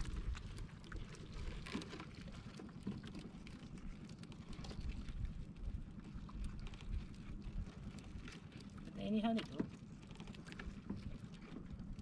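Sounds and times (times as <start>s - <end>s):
water sloshing around boat: 0.0s - 12.0s.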